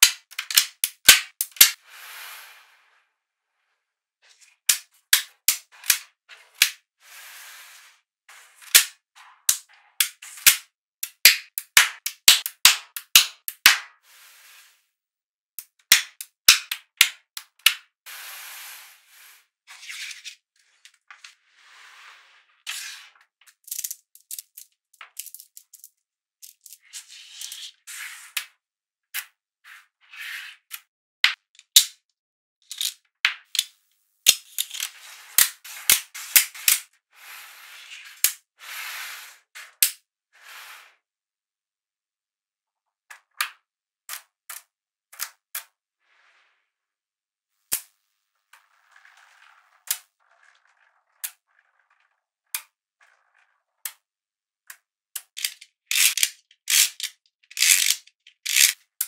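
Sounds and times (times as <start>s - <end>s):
magnetic balls snapping together: 0.0s - 1.8s, 4.7s - 6.8s, 8.6s - 14.0s, 15.6s - 17.9s, 54.7s - 58.8s
balls rolling and sliding: 0.2s - 15.0s, 15.9s - 28.6s, 32.7s - 41.1s, 43.0s - 47.0s, 47.6s - 54.1s.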